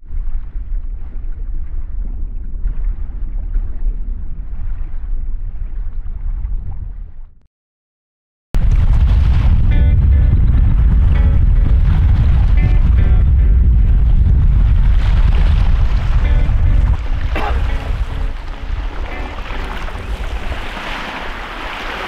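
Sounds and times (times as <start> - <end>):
water splash with deep rumble: 0.0 - 7.4, 8.6 - 22.0
loud boom: 8.6 - 20.6.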